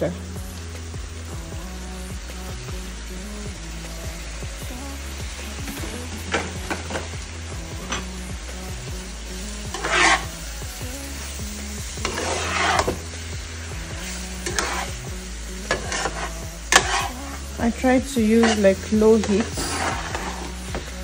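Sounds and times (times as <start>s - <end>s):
gentle sizzle: 0.0s - 21.0s
spatula scraping frying pan: 9.7s - 10.4s, 11.9s - 13.2s, 14.0s - 21.0s.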